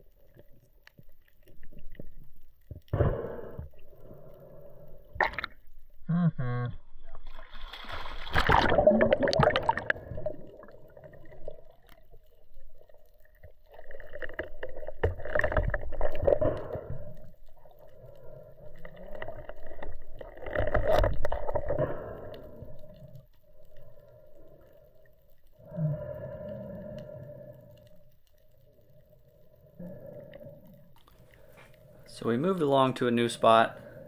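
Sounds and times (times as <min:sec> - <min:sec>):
underwater bubbles rushing: 0:06.9 - 0:24.2
water rushing past camera: 0:07.2 - 0:11.7.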